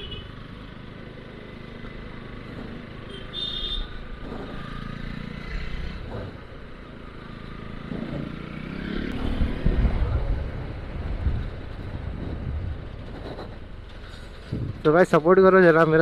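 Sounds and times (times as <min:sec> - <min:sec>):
road and wind noise: 0:00.0 - 0:16.0
motorcycle engine revving: 0:04.0 - 0:10.8.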